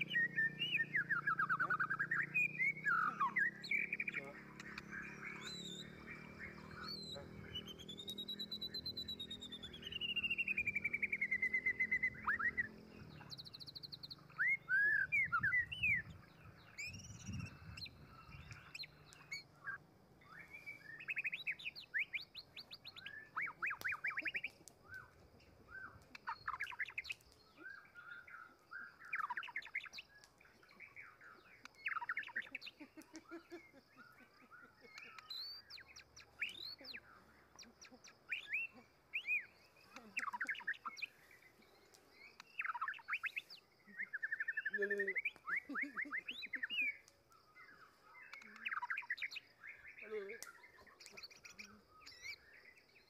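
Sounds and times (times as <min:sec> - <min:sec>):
birds chirping: 0:00.0 - 0:53.0.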